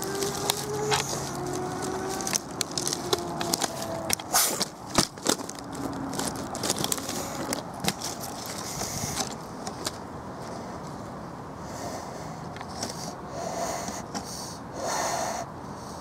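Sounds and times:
sticks snapping: 0:00.0 - 0:08.6
dry sticks and leaves crackling: 0:00.0 - 0:11.0.

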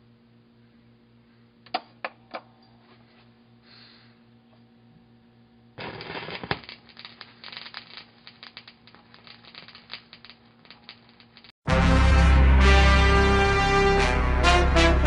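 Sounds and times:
faint steady hum: 0:00.0 - 0:11.5
vinyl crackle and pops: 0:05.8 - 0:11.5.

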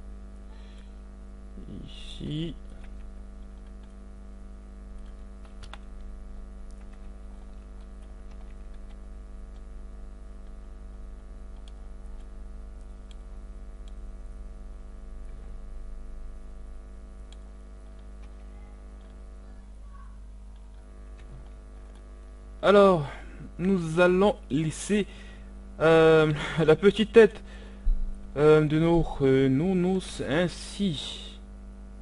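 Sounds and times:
steady electrical hum: 0:00.0 - 0:32.0
keyboard and mouse clicks: 0:02.6 - 0:04.0, 0:04.9 - 0:09.7, 0:11.5 - 0:14.0, 0:17.3 - 0:19.2.

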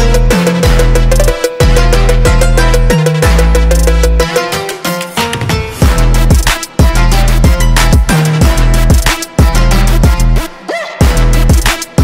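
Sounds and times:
deep sustained bass line: 0:00.0 - 0:04.4
kick-drum beat: 0:00.0 - 0:12.0.

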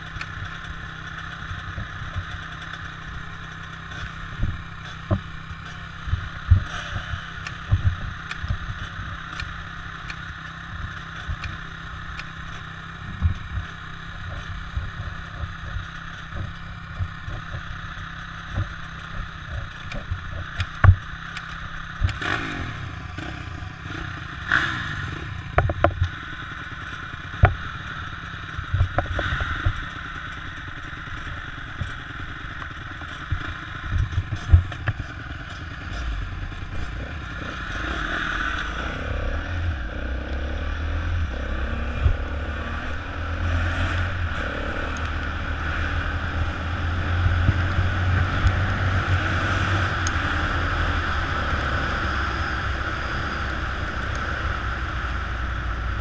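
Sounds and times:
dirt bike engines: 0:00.0 - 0:56.0
sharp knocks and clicks: 0:03.9 - 0:22.3, 0:25.5 - 0:26.2, 0:26.8 - 0:27.6, 0:28.5 - 0:30.6, 0:31.2 - 0:37.9.

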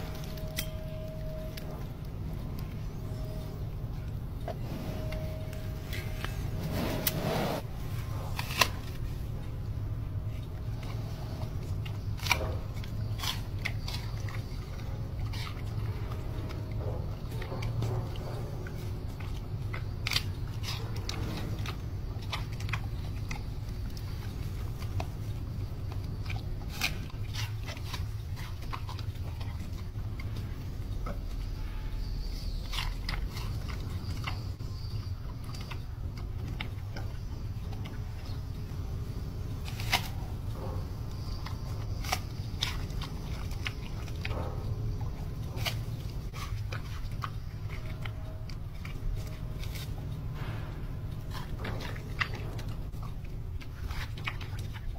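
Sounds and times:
steady low hum: 0:00.0 - 0:54.9
panda crunching an apple: 0:05.8 - 0:09.6, 0:10.2 - 0:16.7, 0:39.5 - 0:54.9.

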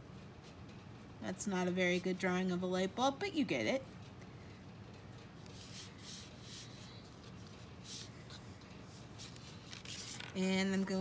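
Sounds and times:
marker drawing on paper: 0:05.4 - 0:09.7.

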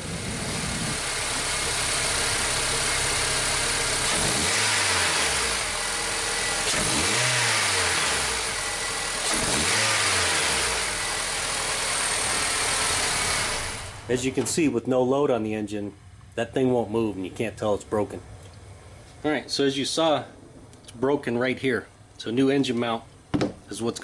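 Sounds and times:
car engine idling and revving: 0:00.0 - 0:14.5.

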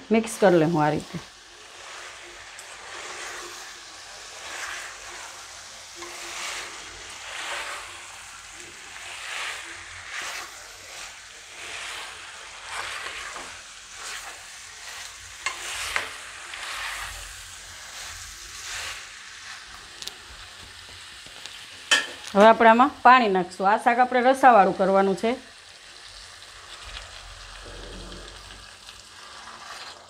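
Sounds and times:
light sizzle: 0:00.0 - 0:30.0
spatula scraping a pan: 0:00.1 - 0:22.5, 0:28.4 - 0:30.0.

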